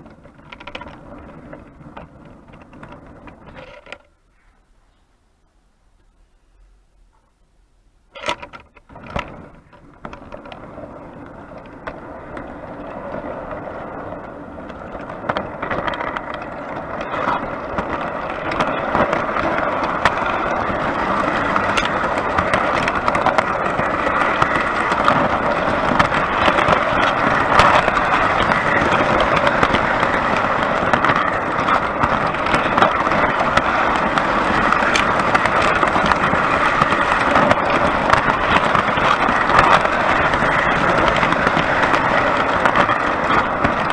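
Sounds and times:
model train rattling along track: 8.8s - 43.9s.

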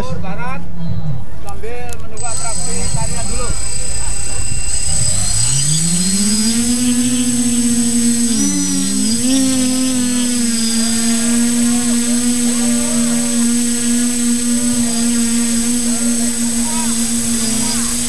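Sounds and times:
drone motors whining: 2.2s - 18.0s.

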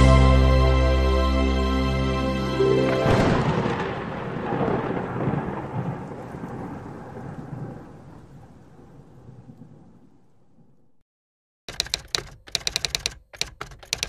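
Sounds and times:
crackling thunder rumble: 3.0s - 11.0s.

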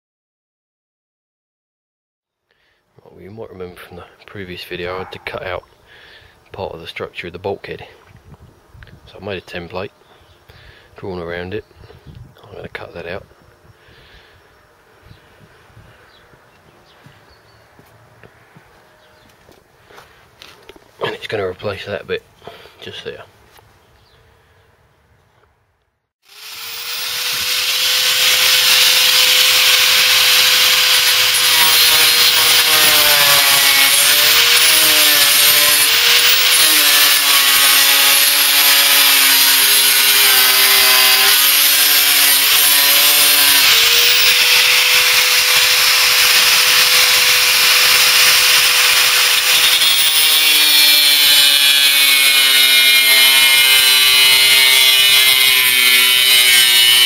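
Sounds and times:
angle grinder cutting steel: 26.2s - 57.0s.

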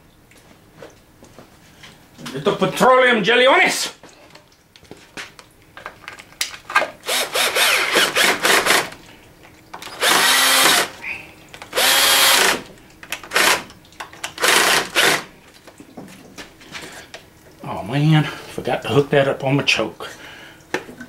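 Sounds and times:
cordless drill driving screws: 7.0s - 9.0s, 9.8s - 11.0s, 11.7s - 12.6s, 13.3s - 13.7s, 14.4s - 15.3s.

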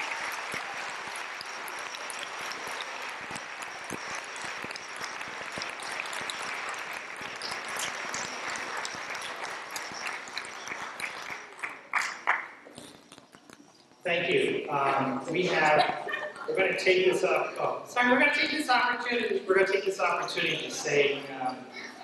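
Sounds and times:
sharp claps or knocks: 0.0s - 12.6s
audience applauding: 0.0s - 13.0s.

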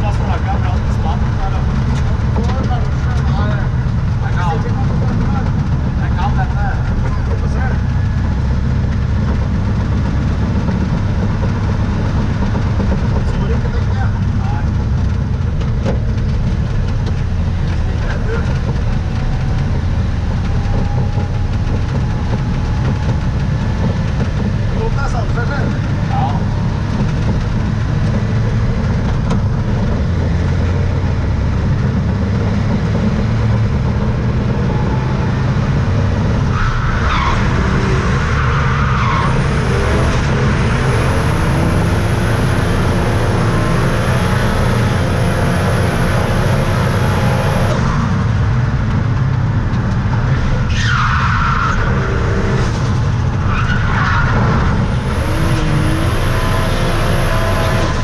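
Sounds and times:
car engine running hard: 0.0s - 58.0s.

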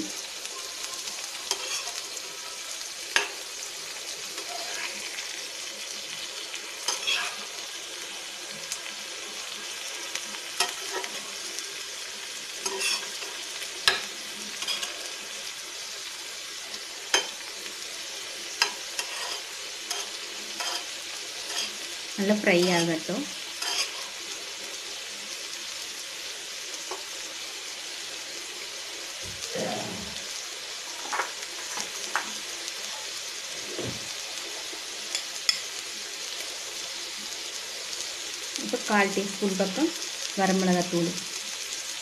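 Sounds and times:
food sizzling in oil: 0.0s - 42.0s
metal spatula scraping pan: 1.4s - 2.0s, 4.4s - 5.3s, 6.8s - 7.6s, 10.6s - 11.2s, 12.6s - 15.2s, 18.6s - 21.8s, 22.8s - 24.2s.

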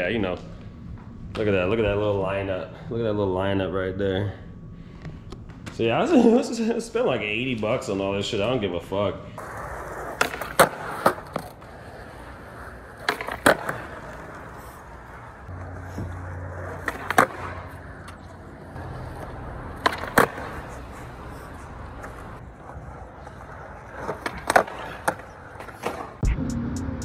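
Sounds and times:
wheels rolling over pavement: 9.4s - 26.2s.

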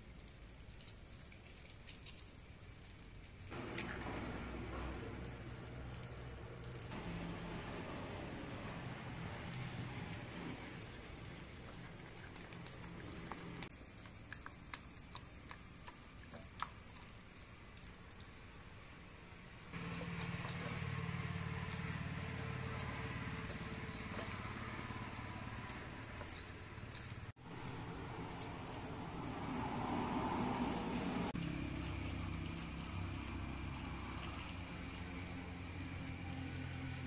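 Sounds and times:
hands mixing paste in bowl: 7.0s - 18.0s, 19.8s - 27.3s.

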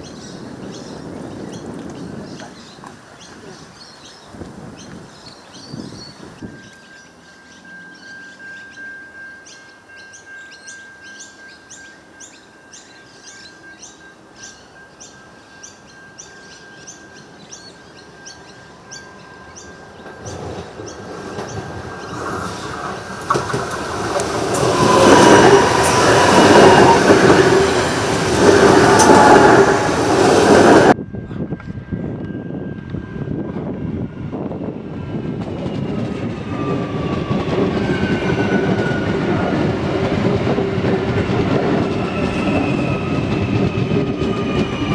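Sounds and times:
train passing with rumble and rattle: 0.0s - 44.9s
steady warning tone: 6.1s - 44.9s
level-crossing bells ringing: 6.3s - 22.2s.

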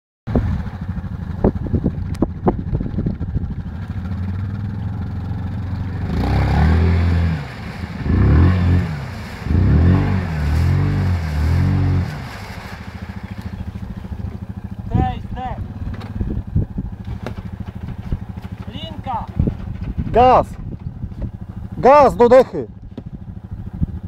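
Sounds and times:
atv engine running: 0.3s - 24.0s
engine revving: 3.8s - 20.4s
sharp knocks: 17.0s - 20.1s.

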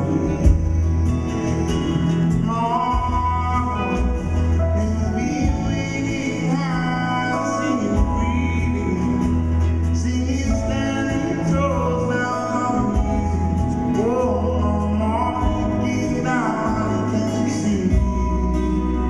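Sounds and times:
acoustic guitar: 0.0s - 19.0s
bass notes: 0.0s - 19.0s
drums: 0.0s - 19.0s
electric guitar: 0.0s - 19.0s
man singing long notes: 1.4s - 19.0s.

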